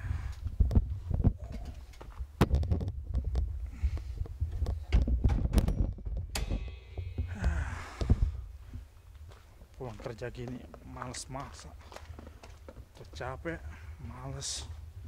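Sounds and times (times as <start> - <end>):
low microphone rumble: 0.0 - 9.8
camera handling thumps and knocks: 0.7 - 3.4.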